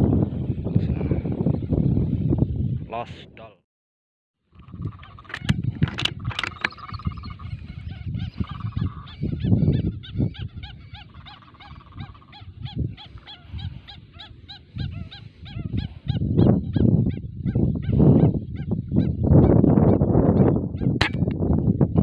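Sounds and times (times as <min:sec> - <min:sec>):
sharp clicks: 0:05.2 - 0:07.0
whistling ducks calling: 0:06.3 - 0:16.0.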